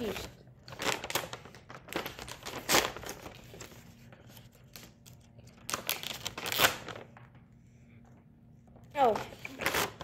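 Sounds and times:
plastic pouch tearing and crinkling: 0.0 - 3.7, 4.6 - 7.2.

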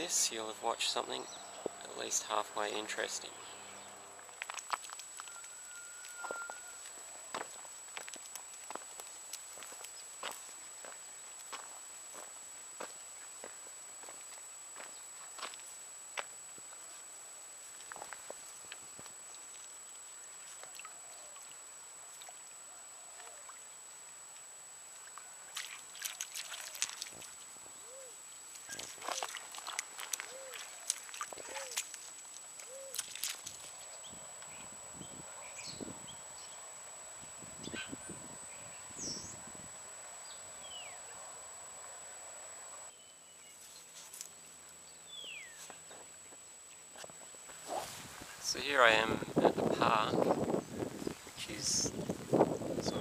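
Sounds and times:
background hiss: 0.0 - 53.0
bird calling: 5.2 - 7.6, 27.8 - 29.4, 30.0 - 31.9, 32.6 - 36.6, 37.6 - 39.4
dog splashing in shallow water: 25.5 - 27.4, 28.7 - 33.7.

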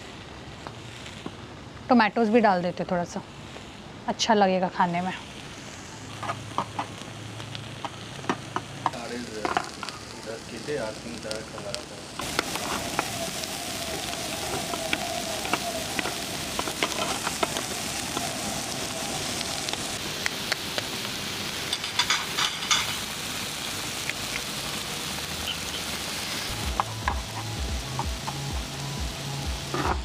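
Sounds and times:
broth boiling: 0.0 - 30.0
food sizzling on grill: 0.0 - 30.0
background music with a beat: 26.5 - 30.0.

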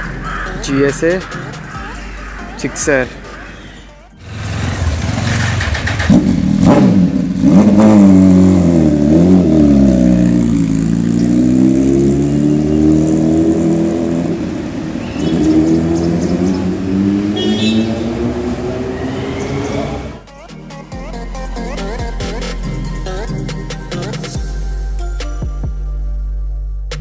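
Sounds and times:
motorcycle engine revving: 4.2 - 20.2
motorcycle riding off: 4.2 - 20.2.

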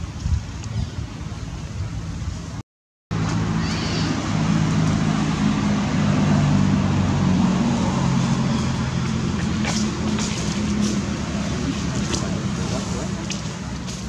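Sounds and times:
vehicle engine running: 3.1 - 14.0.

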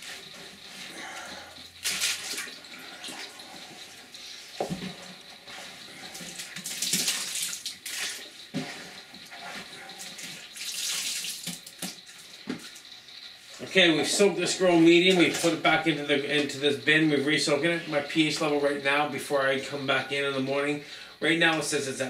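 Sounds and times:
water splashing into plastic tote: 1.8 - 2.6, 6.4 - 8.3, 10.3 - 12.0.

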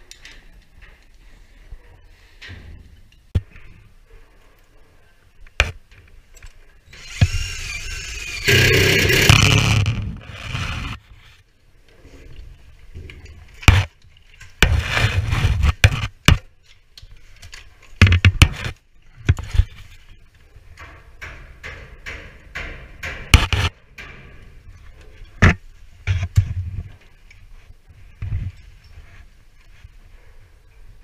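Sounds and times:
knocks and clicks on sheet metal: 18.0 - 18.8, 20.8 - 24.4.

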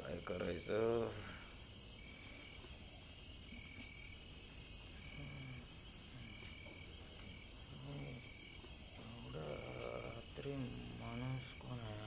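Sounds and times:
insects chirping: 0.0 - 12.0
low frog croaks: 0.0 - 12.0.

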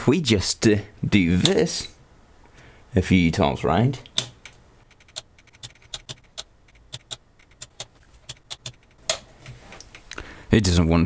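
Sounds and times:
sharp plastic switch clicks: 4.0 - 4.6
click and rattle: 4.4 - 10.1.

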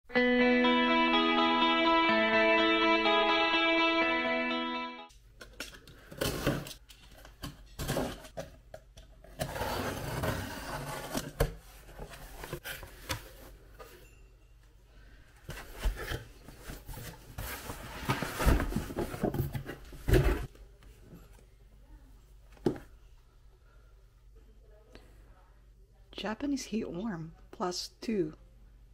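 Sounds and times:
box sliding out: 9.4 - 13.4
cardboard rustling: 15.4 - 20.5
cardboard flaps scraping: 15.6 - 20.5.

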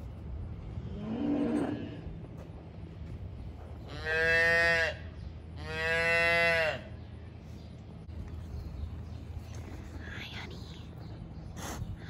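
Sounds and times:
calf mooing: 3.9 - 5.0, 5.6 - 6.8.

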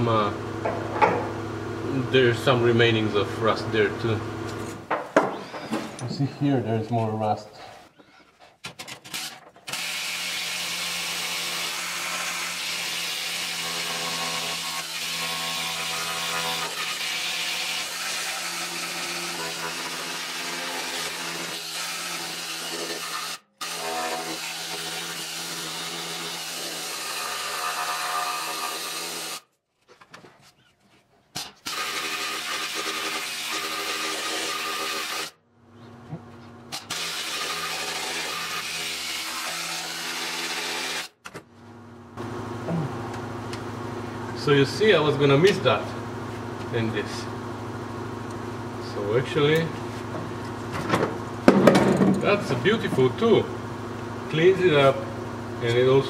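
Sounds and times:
power tool grinding sheet metal: 8.9 - 29.5, 31.4 - 35.4, 36.7 - 41.2.

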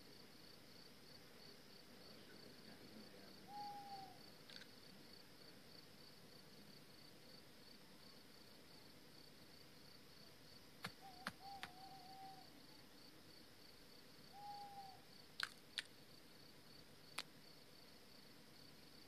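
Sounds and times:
crickets chirping: 0.0 - 19.0
owl hooting: 3.4 - 4.2, 10.8 - 12.8, 14.3 - 15.1
sharp clicks: 10.8 - 11.8, 15.4 - 15.9.

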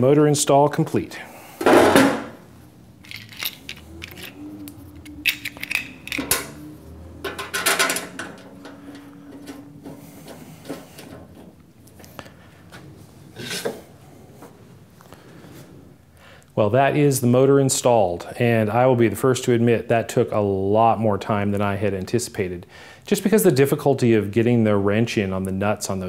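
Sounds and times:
metallic clicks and clinks: 3.0 - 6.6.

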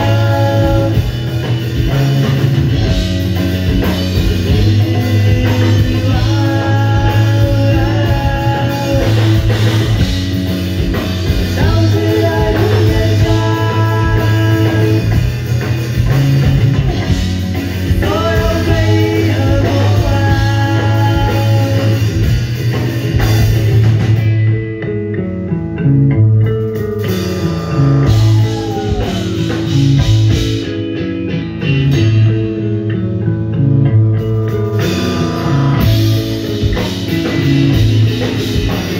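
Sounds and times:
person singing: 0.0 - 2.0, 4.3 - 9.9, 11.4 - 15.3, 17.9 - 22.2
drum kit: 0.0 - 38.9
electric bass: 0.0 - 38.9
electric guitar: 0.0 - 38.9.

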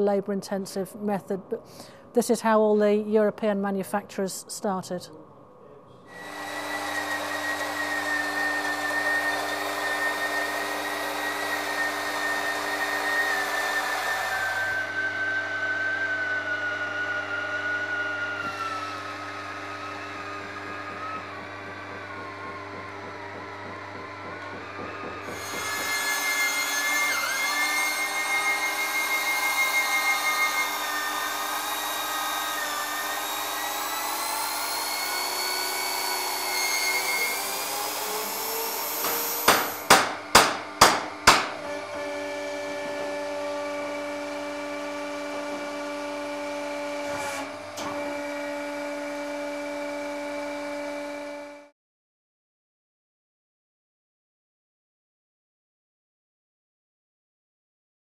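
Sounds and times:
electric drill boring into wood: 6.1 - 51.6.

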